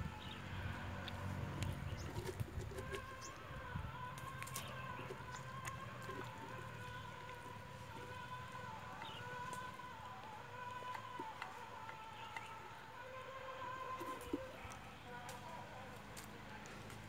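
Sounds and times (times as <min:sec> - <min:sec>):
faint hum: 0:00.0 - 0:17.0
hand scraping pumpkin flesh: 0:01.0 - 0:03.3
small clicks and crackles: 0:04.2 - 0:12.6.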